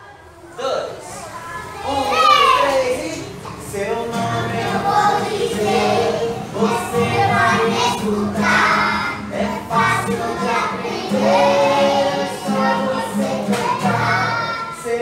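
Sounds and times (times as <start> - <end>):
young children singing: 1.1 - 15.0
acoustic guitar chords: 1.9 - 15.0.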